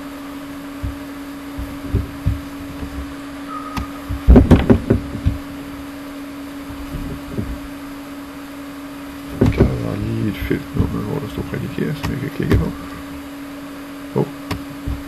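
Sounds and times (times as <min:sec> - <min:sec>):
electrical hum: 0:00.0 - 0:15.0
soft low thumps: 0:00.4 - 0:08.0, 0:09.2 - 0:13.3, 0:14.2 - 0:15.0
loud knocks and thumps: 0:00.8 - 0:03.1, 0:03.8 - 0:05.6, 0:06.7 - 0:07.7, 0:09.3 - 0:09.9.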